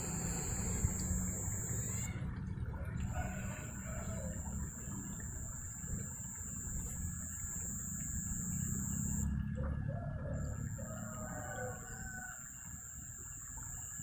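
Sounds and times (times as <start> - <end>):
low steady rumble: 0.0 - 14.0
faint rooster crowing: 2.8 - 5.0, 9.8 - 13.0.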